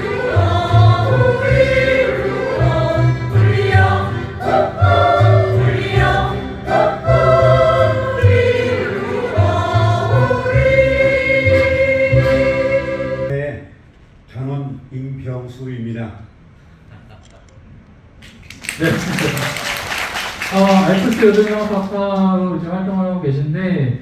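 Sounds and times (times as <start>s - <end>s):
choir singing: 0.0s - 13.3s.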